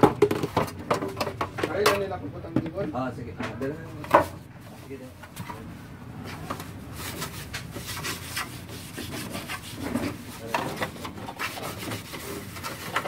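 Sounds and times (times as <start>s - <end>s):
cloth rubbing plastic: 4.6s - 13.0s.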